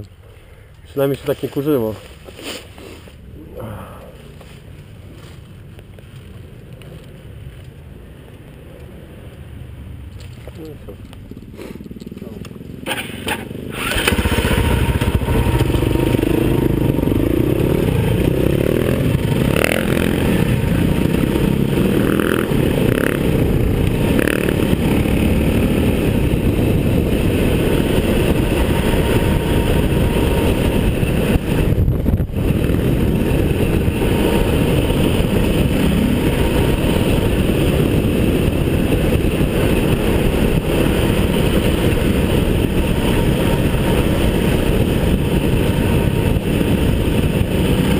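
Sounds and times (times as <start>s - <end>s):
motorcycle engine revving: 11.3s - 47.9s
wind rush: 13.2s - 47.9s.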